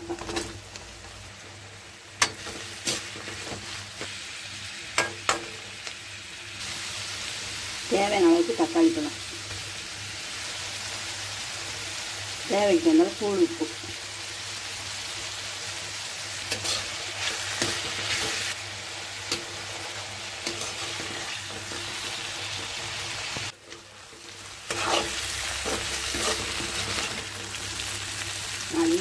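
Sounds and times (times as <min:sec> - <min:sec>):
vegetables sizzling in hot oil: 0:00.0 - 0:29.0
metal spatula scraping: 0:16.5 - 0:18.6, 0:20.4 - 0:23.0, 0:23.6 - 0:27.9.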